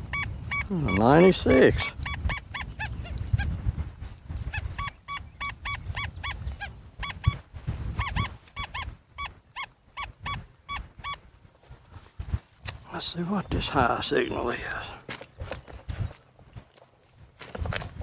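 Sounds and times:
wind rumbling on microphone: 0.0 - 18.0
metal detector beeping: 0.1 - 2.8, 4.6 - 11.2.

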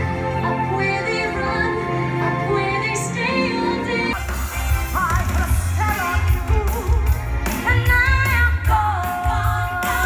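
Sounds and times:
pop backing track with bass beat: 4.1 - 10.0.

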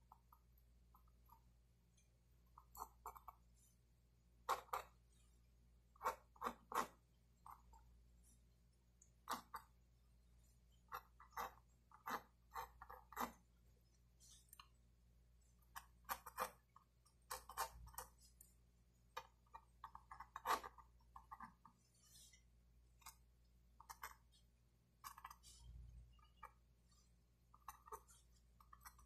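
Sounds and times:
pencil scratching on paper: 2.5 - 3.8, 4.4 - 8.6, 9.2 - 14.8, 15.4 - 18.6, 19.2 - 29.0.

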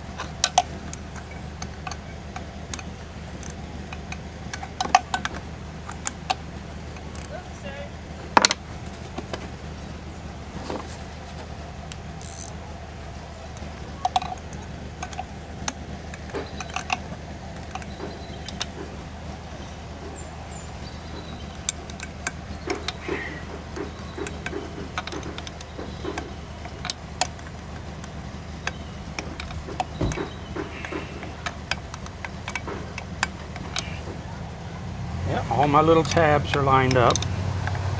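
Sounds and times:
steady low hum: 0.0 - 37.9
metal parts clinking: 12.2 - 12.6, 16.1 - 18.7.

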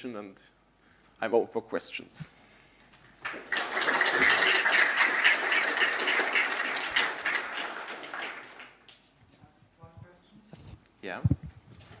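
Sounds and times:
audience applauding: 3.2 - 8.9.

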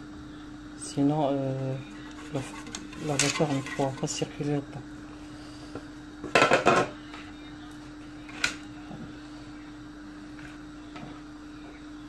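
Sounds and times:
grains pattering on metal: 1.9 - 4.4.

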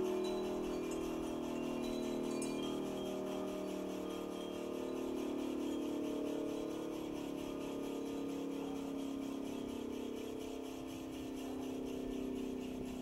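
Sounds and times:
siren steady tone: 0.0 - 10.3.

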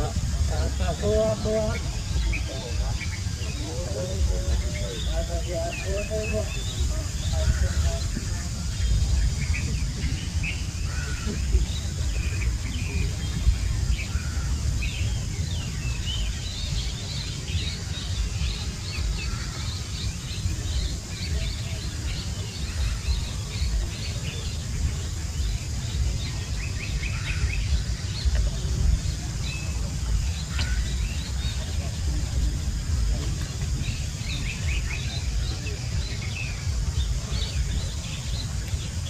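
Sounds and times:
small birds chirping: 0.0 - 39.0
steady low rumble: 0.0 - 39.0.

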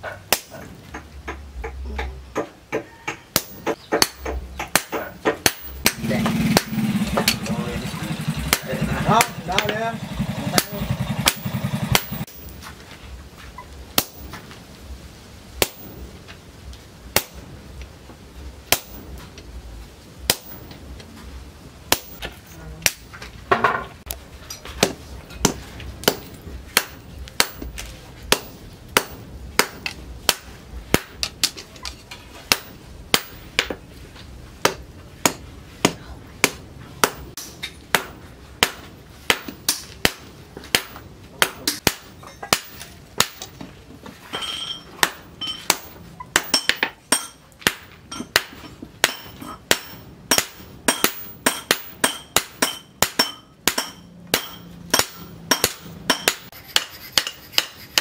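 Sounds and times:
hammer striking steel on anvil: 2.0 - 7.6, 10.4 - 12.6, 14.0 - 14.4, 15.6 - 16.0, 18.7 - 19.2, 20.3 - 20.8, 21.9 - 23.1, 24.5 - 31.6, 32.5 - 33.8, 34.6 - 43.6, 44.3 - 58.0.

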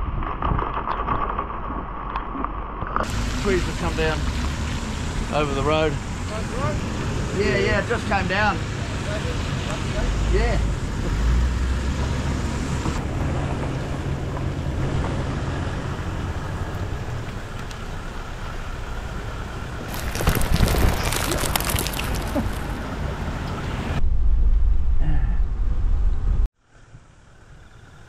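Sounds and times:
crackling noise: 0.0 - 6.4, 12.8 - 26.5
vehicle road and engine noise: 2.7 - 28.0
dull low rumble: 12.8 - 26.5
wind buffeting: 12.9 - 26.5.

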